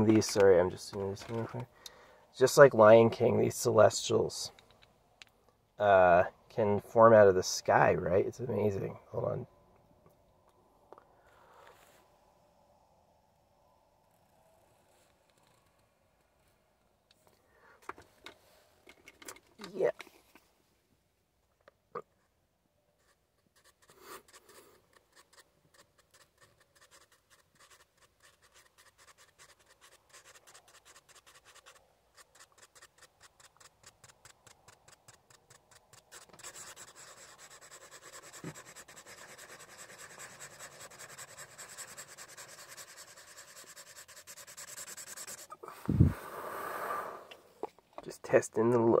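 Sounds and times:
marker scratching on paper: 23.0s - 45.6s.

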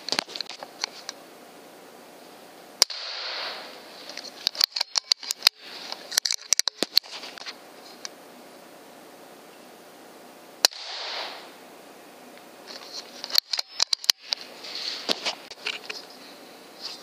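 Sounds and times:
air rifle shot: 2.8s - 3.7s, 10.6s - 11.6s.

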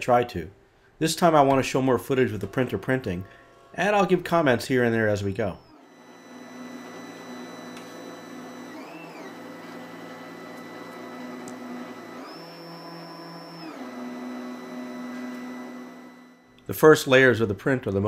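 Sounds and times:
stepper motors whining: 5.6s - 16.5s.

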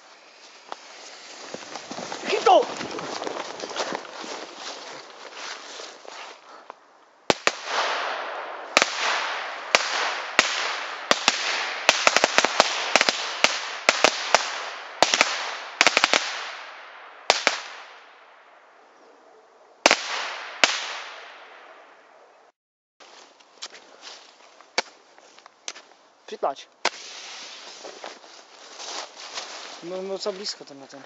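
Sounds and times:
firecracker bangs with echo: 7.3s - 18.1s, 19.9s - 21.4s.

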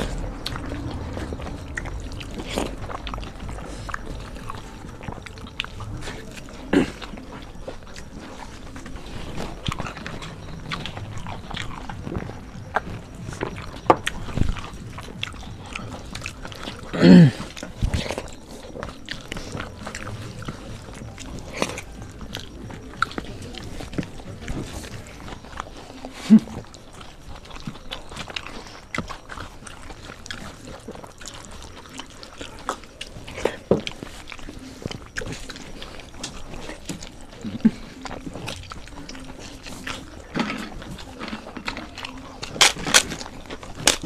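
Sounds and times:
people chewing and biting: 0.0s - 44.0s
person humming or grunting: 16.9s - 17.4s.

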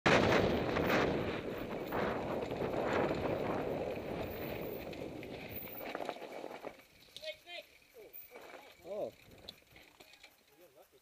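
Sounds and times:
wind on microphone: 0.1s - 6.7s
bike knocks and rattles: 0.1s - 10.7s
tyres crunching on gravel: 0.2s - 10.4s.

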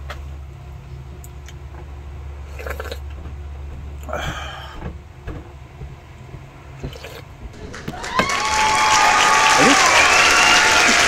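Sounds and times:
slurping soup: 2.5s - 3.0s.

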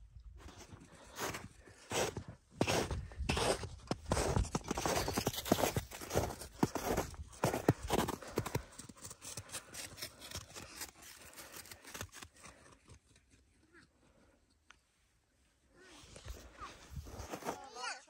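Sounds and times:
footsteps crunching in snow: 0.4s - 12.6s, 16.2s - 17.9s.

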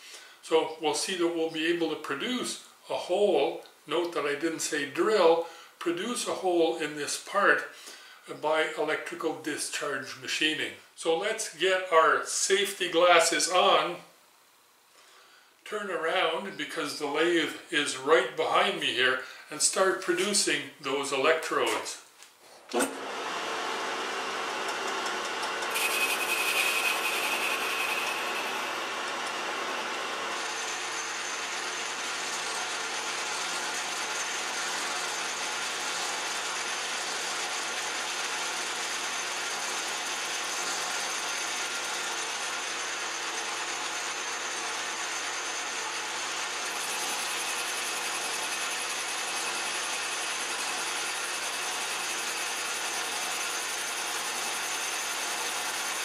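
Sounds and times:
metal lathe machining: 22.8s - 32.1s
thin whine: 25.6s - 28.9s.

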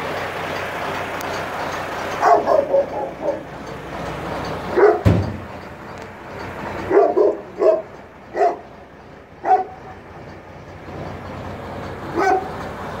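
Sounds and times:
truck engine running: 0.0s - 13.0s
dog barking: 2.2s - 3.4s, 4.8s - 5.0s, 6.9s - 8.6s, 9.4s - 9.8s, 12.1s - 12.5s.

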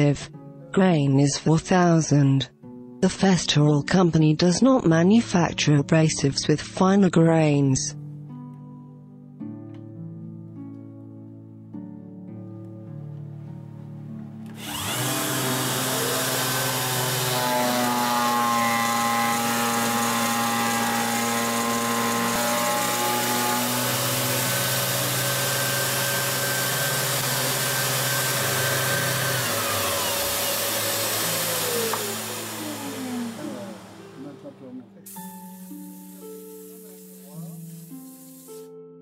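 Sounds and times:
disc sander whining: 14.5s - 34.6s.

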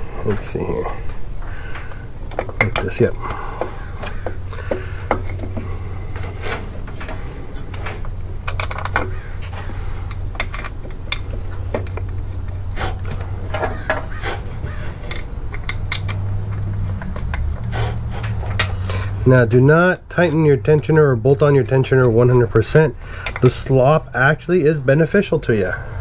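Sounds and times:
steady low hum: 0.0s - 26.0s
metallic clicks and knocks: 2.2s - 5.6s, 6.9s - 9.2s, 10.1s - 12.6s, 13.5s - 19.1s, 23.2s - 23.8s.

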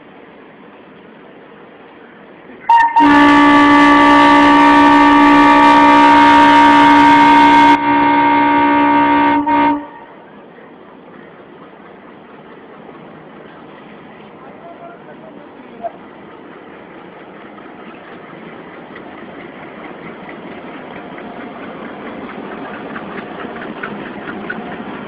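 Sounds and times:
locomotive air horn blast: 2.7s - 10.2s.

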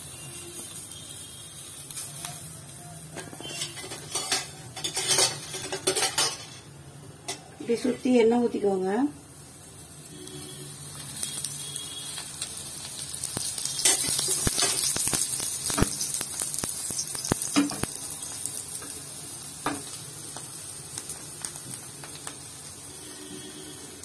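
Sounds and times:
oil sizzling on a hot pan: 0.0s - 24.0s
sharp crackles and pops: 0.1s - 5.7s, 10.0s - 24.0s.

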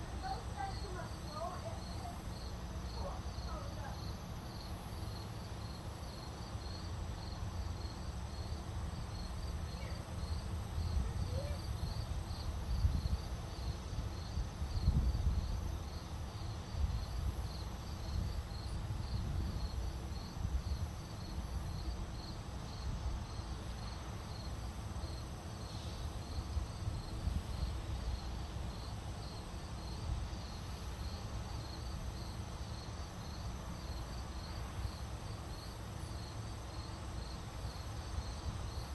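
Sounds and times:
crickets chirping: 0.0s - 38.9s.

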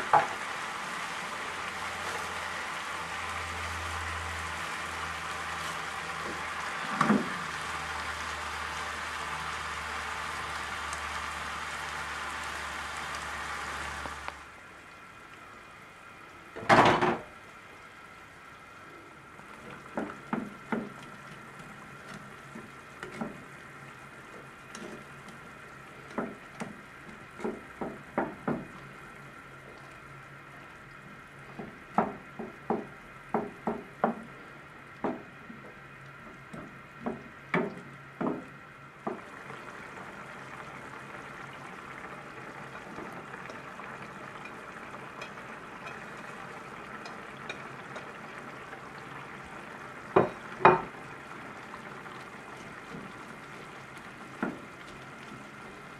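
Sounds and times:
vegetables sizzling in a frying pan: 0.0s - 55.9s
wooden spatula knocking on pan: 19.9s - 21.0s, 26.1s - 26.8s, 27.4s - 28.7s, 31.6s - 34.3s, 35.0s - 35.3s, 36.6s - 39.2s, 50.2s - 50.9s, 54.4s - 54.6s.

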